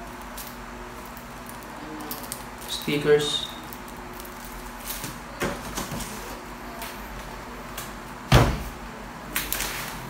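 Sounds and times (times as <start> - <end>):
loud knock with deep thud: 8.3 - 8.7.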